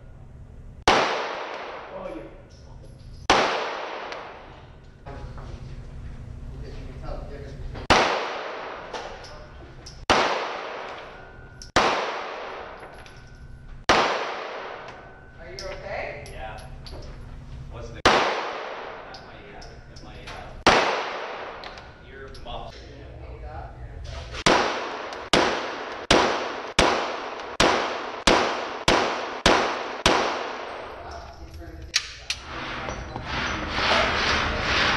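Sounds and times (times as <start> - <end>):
handgun shots with echo: 0.9 - 2.0, 3.2 - 4.5, 7.9 - 9.3, 10.0 - 13.2, 13.9 - 15.1, 18.0 - 19.2, 20.6 - 22.0, 24.4 - 30.8.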